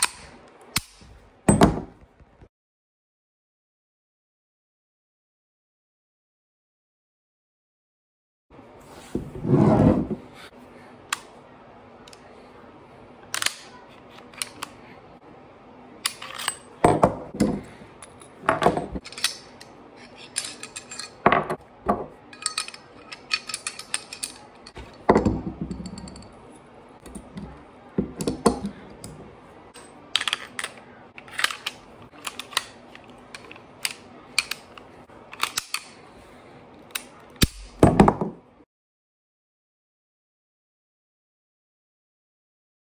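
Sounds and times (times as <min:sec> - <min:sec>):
small parts set on wooden table: 0:16.0 - 0:38.4
pistol metal clicks and clacks: 0:30.2 - 0:36.0.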